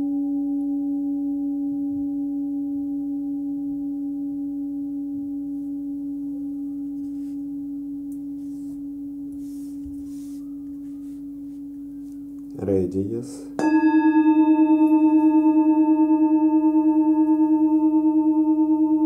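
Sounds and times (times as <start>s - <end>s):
singing bowl ringing: 0.0s - 19.0s.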